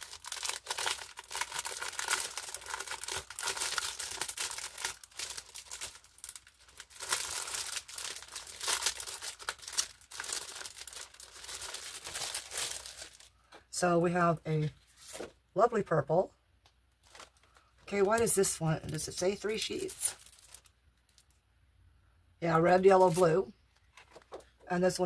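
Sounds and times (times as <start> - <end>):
plastic packaging crinkling: 0.0 - 13.6, 17.0 - 21.4, 22.6 - 24.6.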